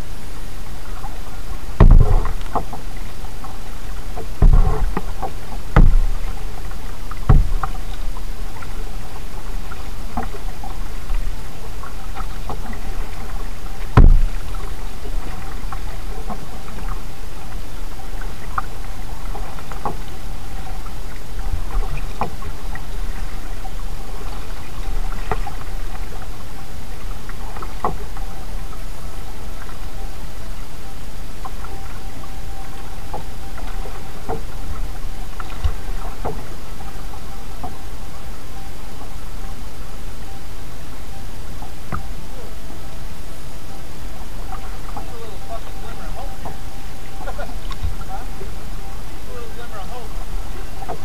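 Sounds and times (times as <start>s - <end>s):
rush of water: 0.0s - 51.0s
loud thumps: 1.8s - 2.7s, 4.4s - 5.1s, 5.7s - 6.2s, 7.2s - 7.7s, 13.9s - 14.4s.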